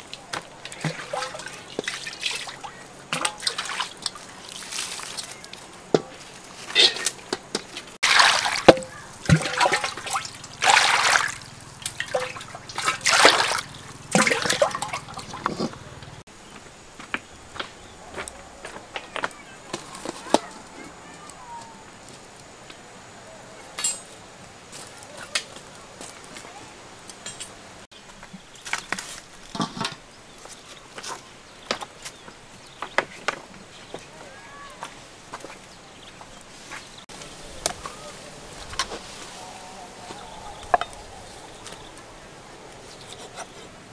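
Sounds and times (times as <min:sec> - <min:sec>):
water sloshing in a wok: 0:00.0 - 0:16.2
wood fire crackling: 0:00.0 - 0:43.9.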